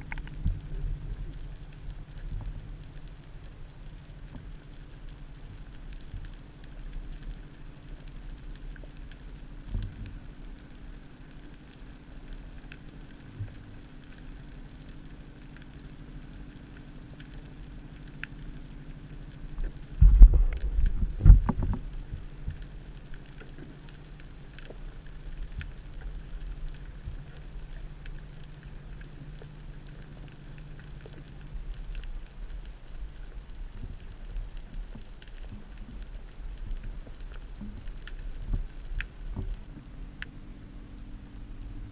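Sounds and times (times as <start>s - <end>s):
faint crackles: 0.0s - 41.9s
underwater rumble and hum: 0.0s - 41.9s
loud low thumps: 20.0s - 21.6s.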